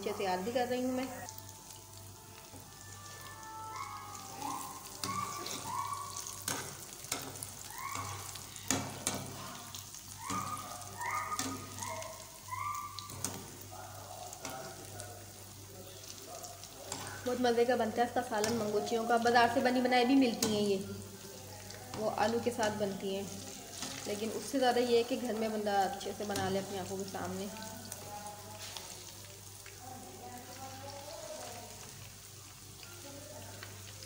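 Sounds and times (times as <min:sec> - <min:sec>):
fritters sizzling in hot oil: 0:00.0 - 0:34.0
high whistled notes: 0:02.8 - 0:06.0.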